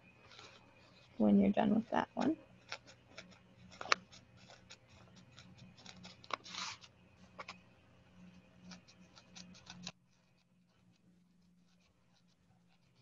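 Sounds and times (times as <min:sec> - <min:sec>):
felting needle poking foam: 0:02.1 - 0:06.8, 0:08.6 - 0:13.0.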